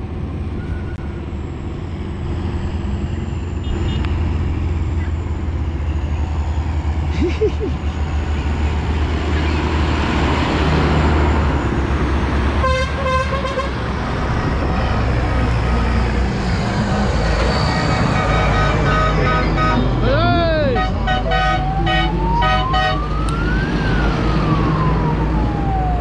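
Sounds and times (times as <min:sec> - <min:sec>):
tractor engines rumbling: 0:00.0 - 0:26.0
vehicle horn tooting: 0:12.6 - 0:13.7, 0:18.1 - 0:20.0, 0:20.6 - 0:23.0.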